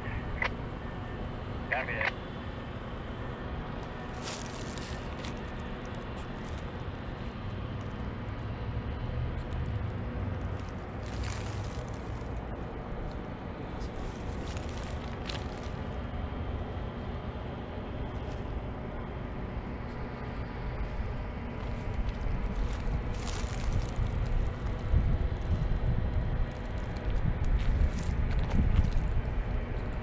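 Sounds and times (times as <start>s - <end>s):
diesel engines idling: 0.0s - 25.4s
wind on microphone: 22.4s - 29.6s.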